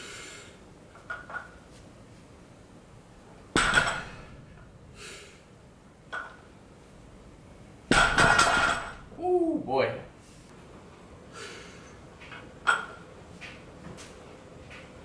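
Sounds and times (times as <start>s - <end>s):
barbell clanking on floor: 7.9s - 9.1s.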